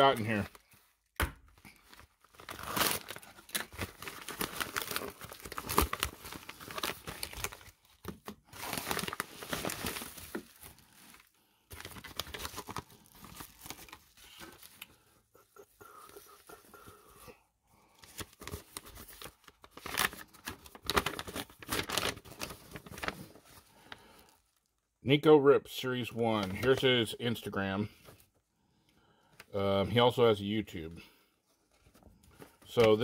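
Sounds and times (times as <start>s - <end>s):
padded mailer crinkling and tearing: 1.6s - 15.0s, 17.9s - 24.3s, 26.3s - 26.9s, 32.4s - 33.0s.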